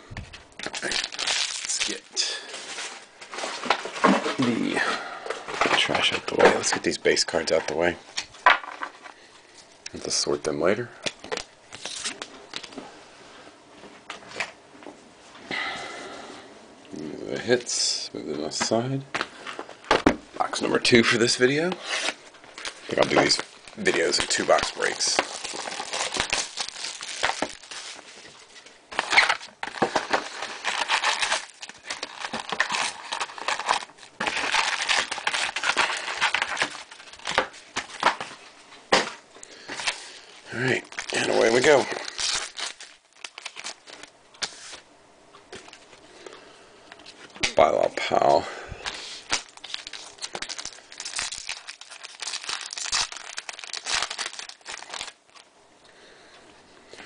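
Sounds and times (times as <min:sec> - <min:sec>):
foil packs crinkling: 0:00.6 - 0:04.5, 0:20.6 - 0:38.5, 0:39.4 - 0:44.8, 0:48.0 - 0:55.5.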